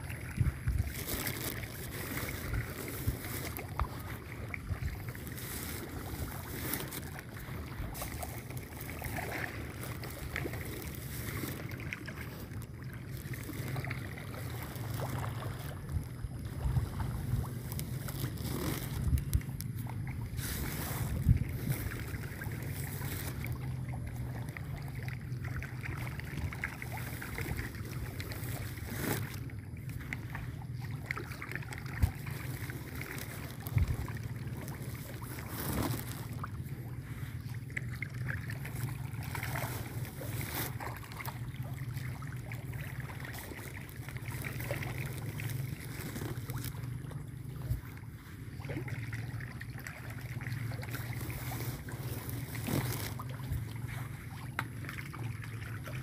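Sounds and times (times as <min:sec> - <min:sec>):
wind noise on microphone: 0:00.0 - 0:09.3, 0:15.6 - 0:24.3, 0:31.9 - 0:37.2
steady low hum: 0:00.0 - 0:56.0.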